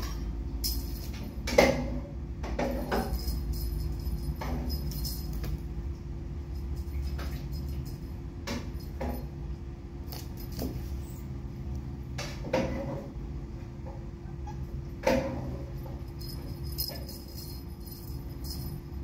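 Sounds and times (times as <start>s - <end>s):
steady low hum: 0.0s - 19.0s
metallic jingles and clicks: 2.8s - 5.7s, 15.8s - 19.0s.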